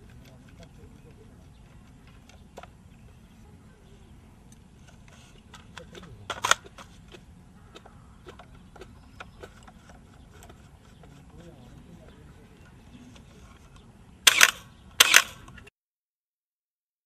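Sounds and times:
rifle metal clack: 5.5 - 6.9.

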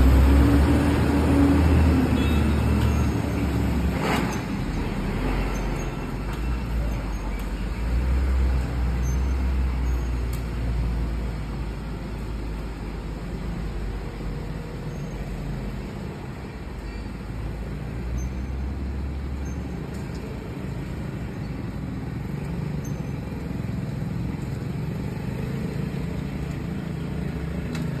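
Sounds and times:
truck engine pulling away: 0.0 - 14.4
cars driving past: 0.0 - 28.0.

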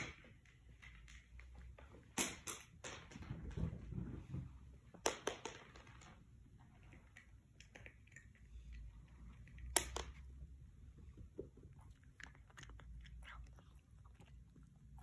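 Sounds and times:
cat claws clicking on hardwood floor: 9.3 - 10.4.

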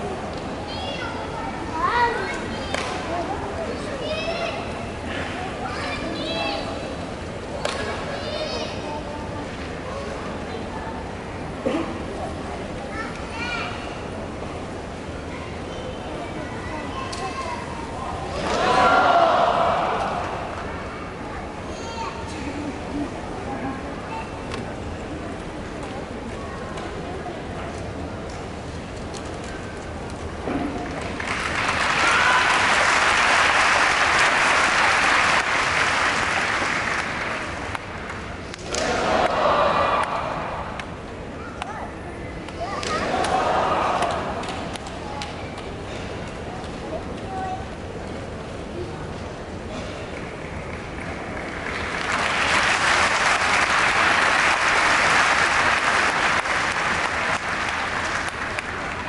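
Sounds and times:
sharp individual claps: 2.7 - 3.0, 30.9 - 41.0
crowd calling out together: 18.4 - 20.6, 38.7 - 40.8, 43.0 - 44.5
crowd applauding: 30.9 - 40.2, 50.2 - 59.0.

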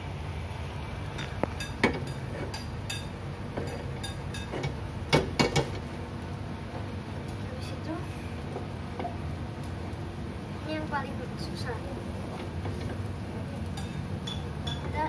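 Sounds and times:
egg sizzling in frying pan: 0.0 - 15.0.

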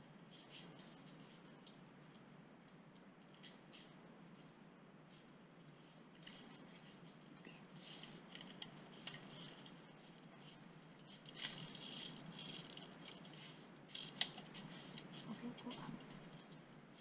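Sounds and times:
light rattles: 5.6 - 16.8.

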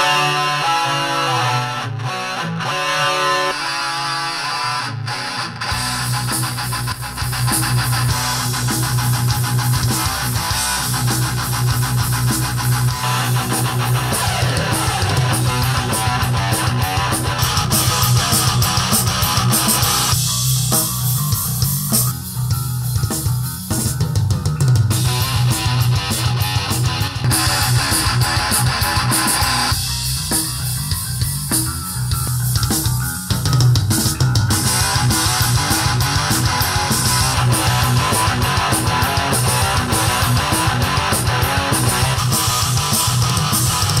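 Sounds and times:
rock music through loudspeakers: 0.0 - 44.0.

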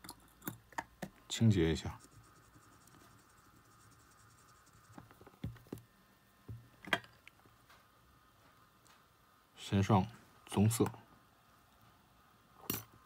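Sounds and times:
cotton swab scratching circuit board: 1.5 - 5.2.

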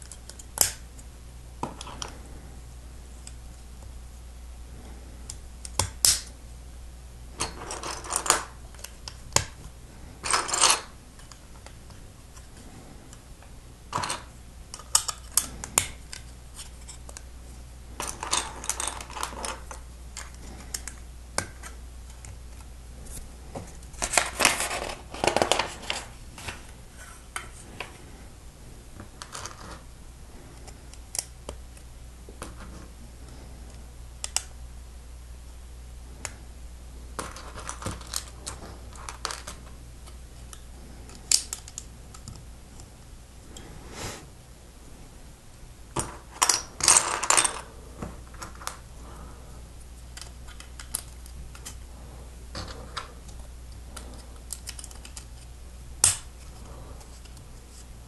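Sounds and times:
plastic pieces rattling: 18.0 - 20.3.

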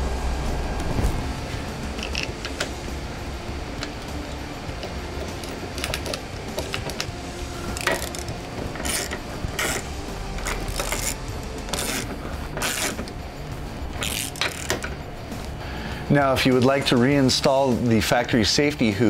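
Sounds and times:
ratchet wrench clicking: 1.8 - 2.9, 3.7 - 13.2, 14.0 - 15.0.

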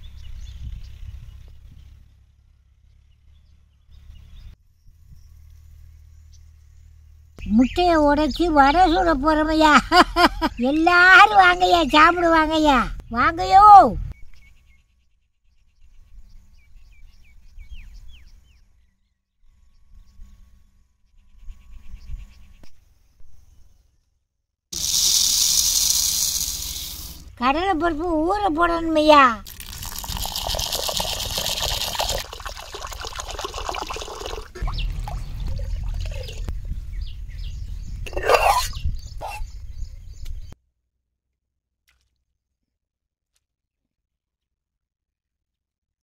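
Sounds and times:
water pouring into clay pot: 24.8 - 27.2, 29.4 - 36.5
insects chirping: 24.8 - 27.3.

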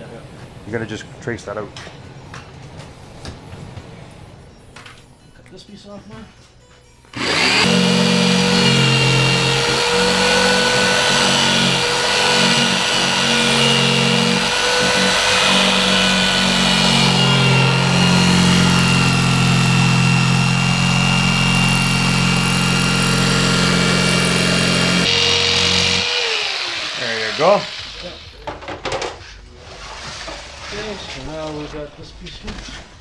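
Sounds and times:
jigsaw cutting plastic: 7.2 - 28.2.

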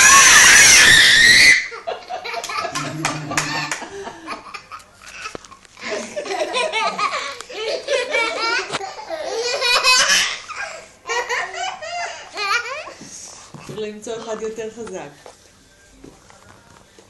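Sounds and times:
children and adults laughing: 1.7 - 12.8.

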